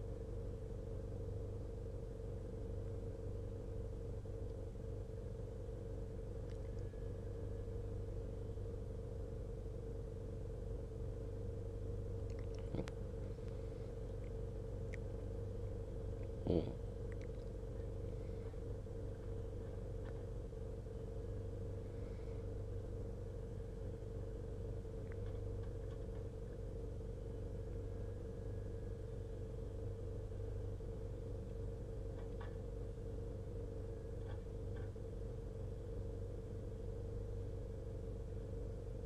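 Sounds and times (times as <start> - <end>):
diesel engine idling: 0.0 - 39.0
faint ticks: 6.2 - 7.2, 12.1 - 16.4, 17.0 - 20.3, 24.9 - 26.6, 34.1 - 35.0.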